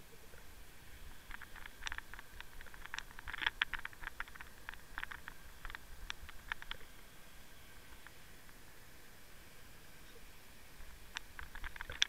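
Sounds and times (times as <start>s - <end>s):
steady hiss: 0.0s - 12.0s
underwater clicking on shells: 1.2s - 7.0s, 11.1s - 12.0s.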